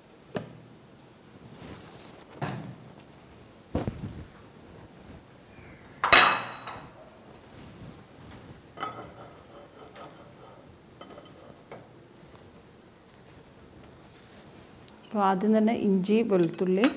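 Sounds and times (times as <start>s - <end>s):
dishes clinking and knocking: 6.0s - 7.0s, 8.8s - 11.9s.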